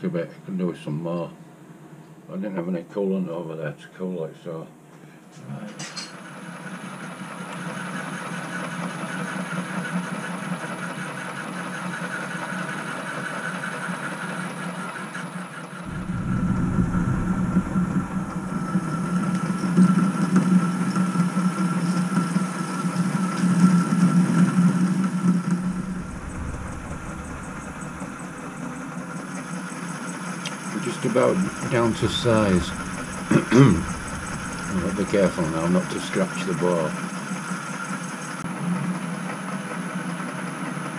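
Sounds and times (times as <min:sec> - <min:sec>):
metal lathe running: 0:25.5 - 0:35.7.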